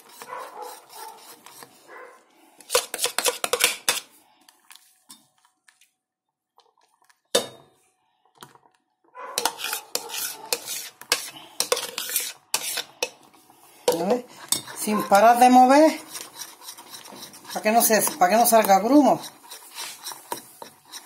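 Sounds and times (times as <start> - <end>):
metal spoon stirring in saucepan: 0.0 - 2.0, 2.6 - 5.4, 9.3 - 21.0.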